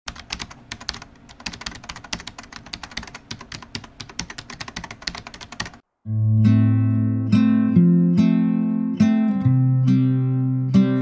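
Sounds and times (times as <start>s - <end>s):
keyboard typing: 0.1s - 5.8s.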